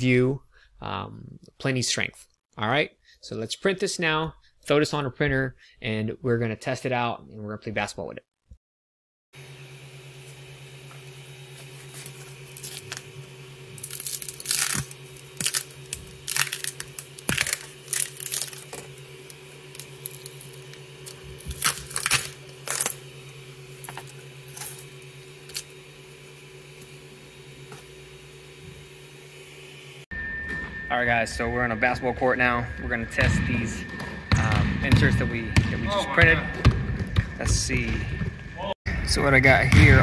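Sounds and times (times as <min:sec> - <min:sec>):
steady low hum: 0:09.5 - 0:40.0
sharp scrapes and cracks: 0:13.8 - 0:23.0.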